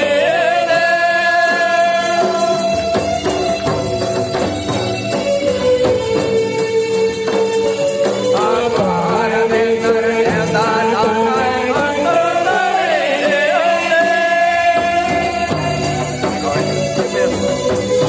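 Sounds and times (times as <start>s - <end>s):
drum beats: 0.0s - 18.0s
folk music with singing: 0.0s - 18.0s.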